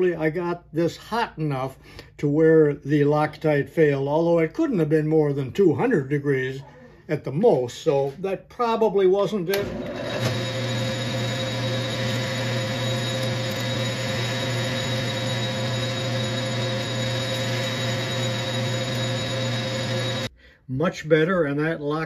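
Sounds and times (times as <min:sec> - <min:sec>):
metal lathe humming: 0:09.5 - 0:20.3
high whine: 0:11.0 - 0:20.3.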